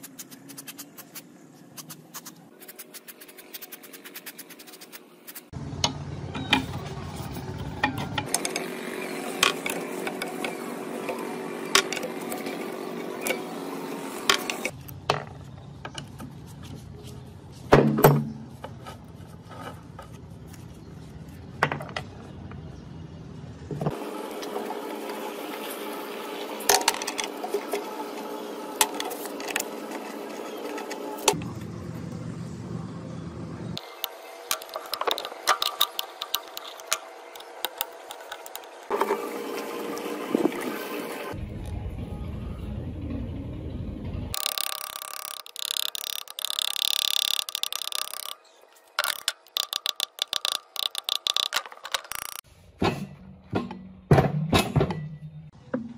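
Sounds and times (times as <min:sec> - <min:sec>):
socket wrench clicking on bolts: 0:34.5 - 0:38.8, 0:44.4 - 0:48.4, 0:49.0 - 0:52.4
flat bar prying metal: 0:49.0 - 0:52.4.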